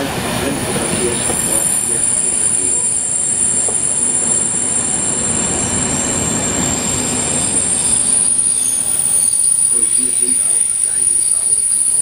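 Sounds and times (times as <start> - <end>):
train wheels rumbling on rail: 0.0 - 12.0
thin high squeal: 6.0 - 12.0.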